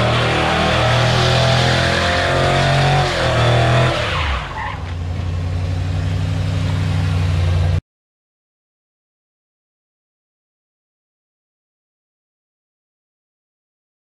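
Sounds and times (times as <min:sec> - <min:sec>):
tires spinning and squealing: 0:00.0 - 0:07.8
truck engine revving: 0:00.0 - 0:07.8.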